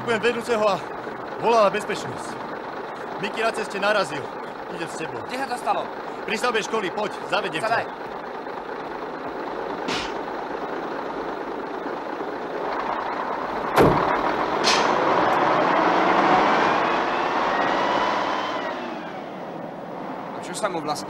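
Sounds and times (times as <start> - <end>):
diesel truck engine running: 0.0 - 21.0
air hissing: 9.9 - 10.2
loud thump: 9.9 - 10.2, 13.7 - 15.0.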